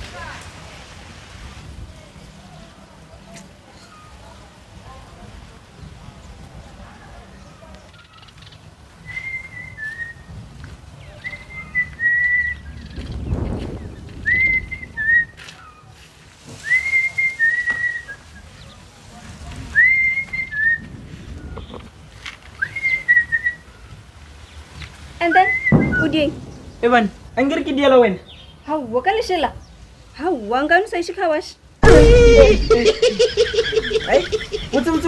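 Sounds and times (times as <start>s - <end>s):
low rustling: 24.2s - 27.8s, 31.8s - 35.0s.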